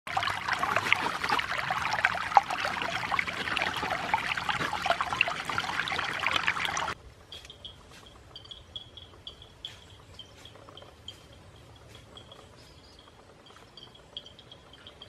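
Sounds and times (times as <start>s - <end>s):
water pouring over a bank: 0.1s - 7.0s.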